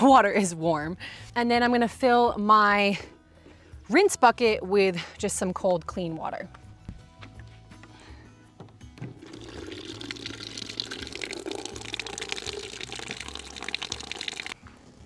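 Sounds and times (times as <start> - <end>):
water pouring into plastic bin: 9.1 - 14.6.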